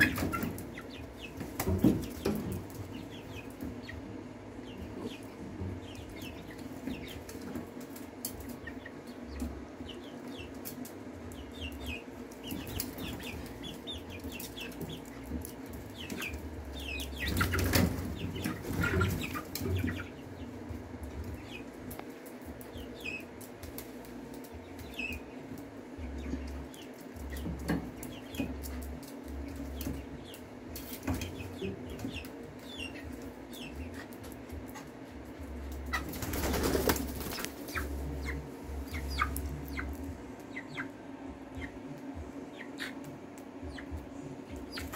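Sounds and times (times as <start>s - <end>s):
chicks peeping and clucking: 0.0s - 44.9s
steady low hum: 0.0s - 44.9s
wings flapping: 35.7s - 38.0s.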